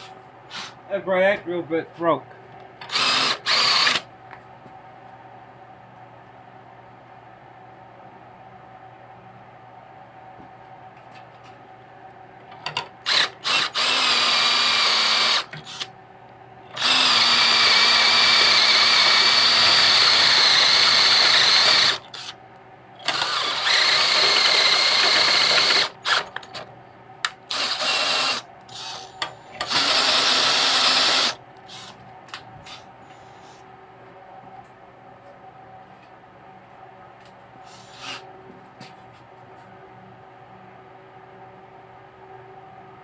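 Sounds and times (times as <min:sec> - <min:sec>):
power drill boring into steel: 0:02.9 - 0:04.0, 0:13.1 - 0:15.9, 0:16.8 - 0:22.3, 0:23.0 - 0:26.2, 0:27.5 - 0:31.9.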